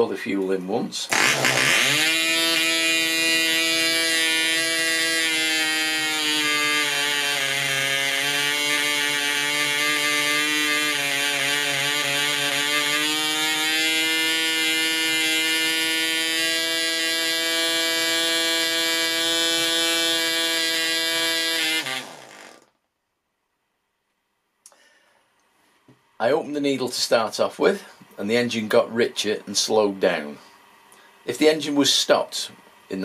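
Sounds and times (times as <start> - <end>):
model engine buzzing: 1.1 - 22.7.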